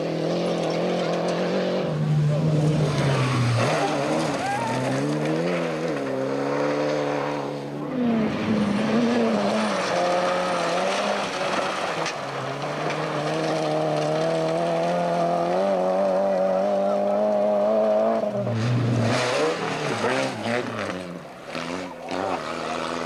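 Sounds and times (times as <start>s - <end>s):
rally car engine high revs: 0.0s - 23.0s
tyres on gravel: 2.1s - 7.4s, 8.2s - 17.4s, 18.3s - 23.0s.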